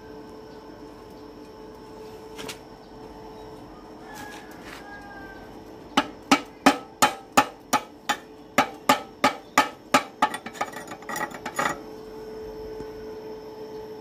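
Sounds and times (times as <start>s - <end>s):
steel pipe knocking on metal box: 6.0s - 11.8s.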